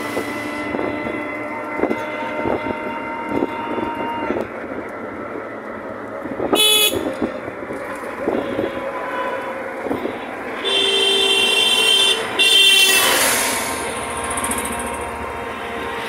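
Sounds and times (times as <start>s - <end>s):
road traffic noise: 0.0s - 16.0s
vehicle horn honking: 0.6s - 4.4s, 6.5s - 7.2s, 10.5s - 13.3s
rush of passing noise: 7.2s - 16.0s.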